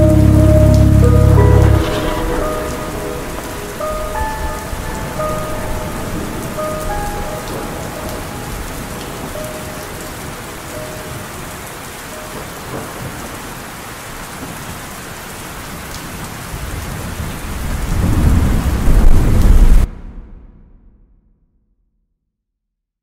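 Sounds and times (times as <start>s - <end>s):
thunder rolling: 0.0s - 11.6s, 16.5s - 21.1s
slowed melody: 0.0s - 12.8s
steady rain: 0.0s - 19.9s.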